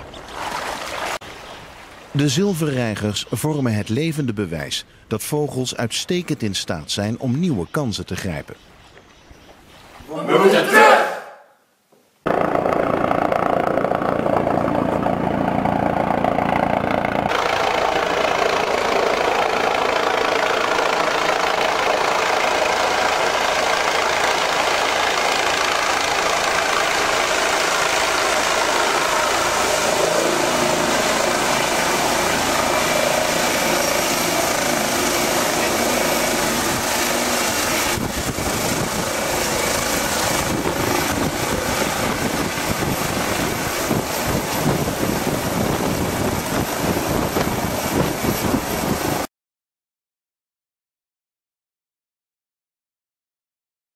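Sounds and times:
helicopter rotor and turbine: 12.2s - 49.3s.

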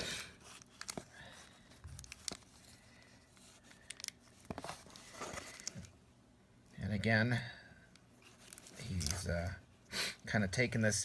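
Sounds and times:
cellophane wrapper crinkling: 0.4s - 5.9s.

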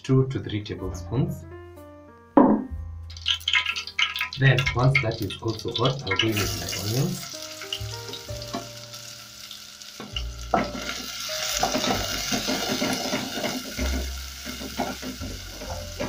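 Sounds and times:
onions sizzling in oil: 5.6s - 16.0s.

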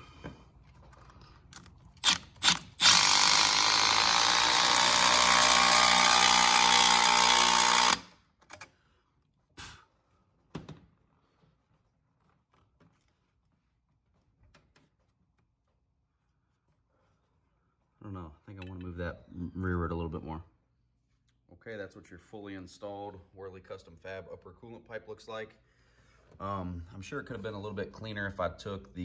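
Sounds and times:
cordless drill running: 2.0s - 8.2s.

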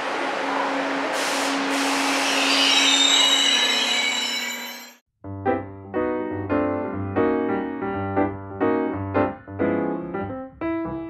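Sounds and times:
piano music: 5.3s - 11.0s.

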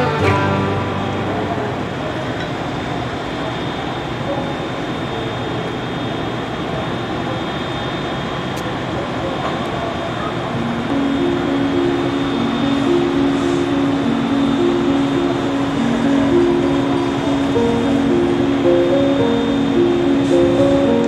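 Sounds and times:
ferry machinery rumble and hiss: 0.0s - 21.0s
faint high whine: 9.6s - 21.0s.

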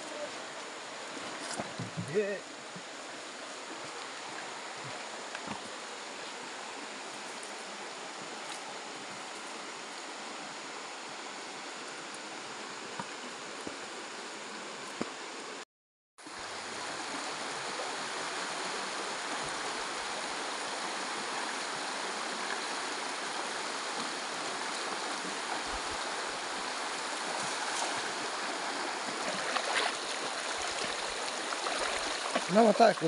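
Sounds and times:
river running over stones: 0.0s - 15.6s, 16.2s - 33.0s
light splashes in water: 29.0s - 32.8s.

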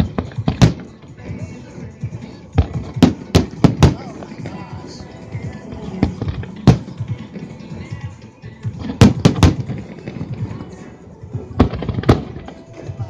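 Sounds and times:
fireworks bursting: 2.6s - 5.0s, 8.8s - 10.8s, 11.5s - 13.0s.

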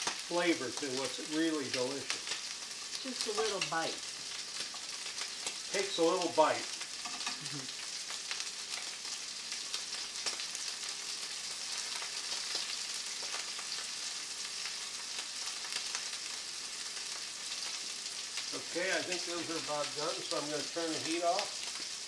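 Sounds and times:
prawns sizzling in pan: 0.0s - 22.0s
small pops and crackles: 0.0s - 22.0s.

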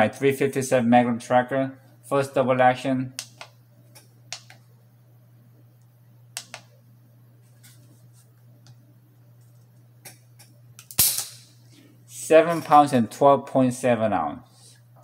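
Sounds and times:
steady low hum: 0.0s - 15.0s
faint handling clicks and taps: 6.4s - 6.7s.

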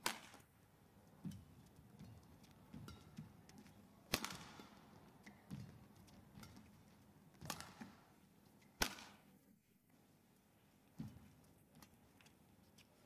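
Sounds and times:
racket smacking shuttlecock: 3.0s - 6.8s, 7.4s - 8.0s.

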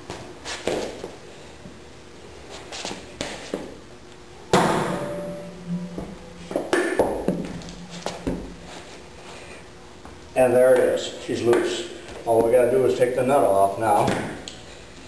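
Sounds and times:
sharp metal knocks: 4.5s - 8.6s
steel drum thudding on wood: 4.5s - 8.7s.

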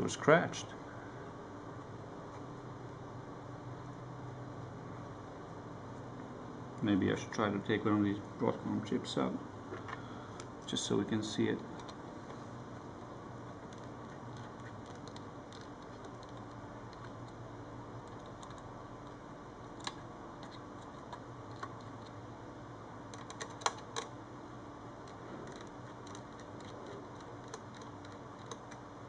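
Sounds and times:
faint steady hum: 0.0s - 29.0s
small clicks from handling circuit board: 13.6s - 17.4s, 18.0s - 19.2s, 25.0s - 28.8s.

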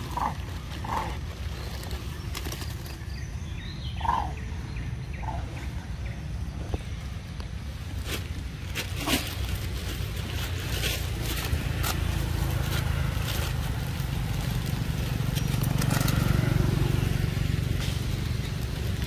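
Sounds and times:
dry leaves crackling underfoot: 0.0s - 4.3s, 5.1s - 19.0s
low steady rumble: 0.0s - 19.0s.

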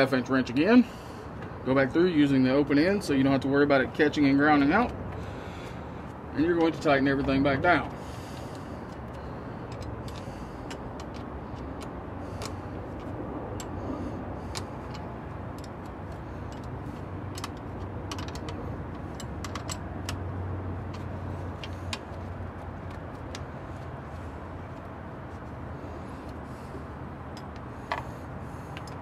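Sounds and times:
steady low hum: 0.0s - 29.0s
wrench clicking on metal nuts: 14.5s - 20.2s.

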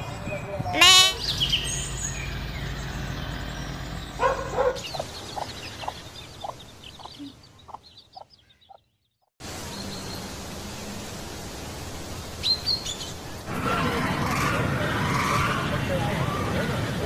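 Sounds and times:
hen clucking: 0.7s - 1.2s, 4.2s - 8.8s.

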